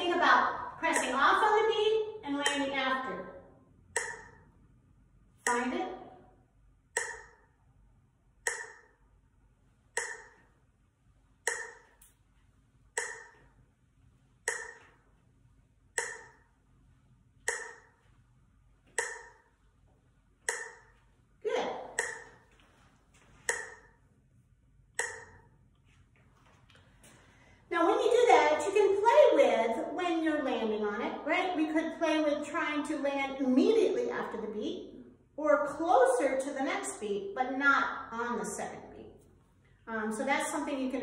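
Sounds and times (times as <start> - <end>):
metronome ticking: 0.0 - 4.7, 5.4 - 7.7, 8.3 - 9.2, 9.8 - 10.6, 11.3 - 12.2, 12.8 - 13.7, 14.4 - 15.2, 15.8 - 16.6, 17.4 - 18.2, 18.8 - 19.8, 20.4 - 22.6, 23.4 - 24.0, 24.8 - 25.7.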